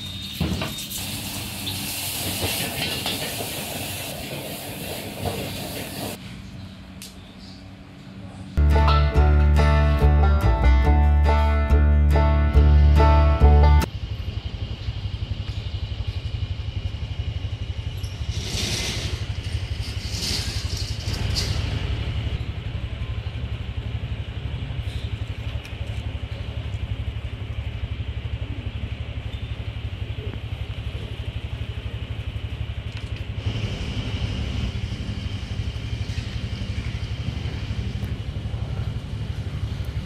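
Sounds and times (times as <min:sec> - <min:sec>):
low engine rumble: 0:02.5 - 0:40.0
motor vehicle passing: 0:31.8 - 0:40.0.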